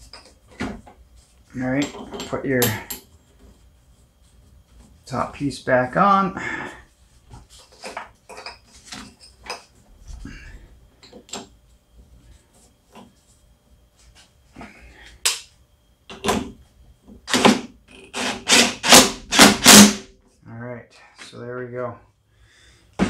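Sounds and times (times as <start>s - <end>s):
impact driver bursts: 17.3s - 20.1s.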